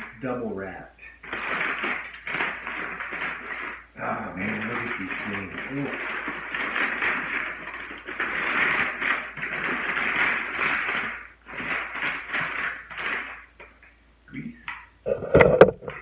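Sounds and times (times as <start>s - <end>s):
paper crinkling and rustling: 1.2s - 13.8s.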